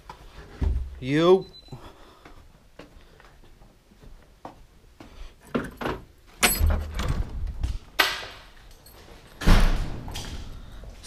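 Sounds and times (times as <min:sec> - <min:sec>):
footsteps: 0:01.8 - 0:06.4, 0:07.1 - 0:11.0
jangling clattering handling noise: 0:05.5 - 0:07.8, 0:08.4 - 0:09.5.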